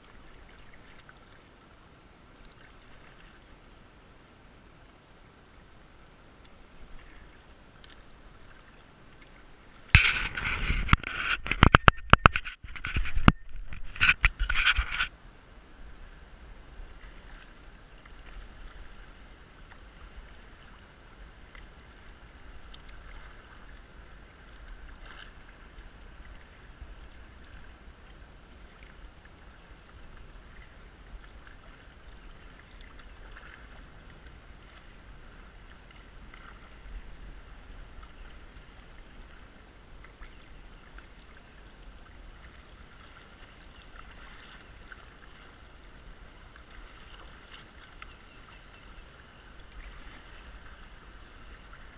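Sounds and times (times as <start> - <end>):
paddle splashes and drips: 0.0 - 15.1, 15.8 - 51.9
water rushing: 0.0 - 51.9.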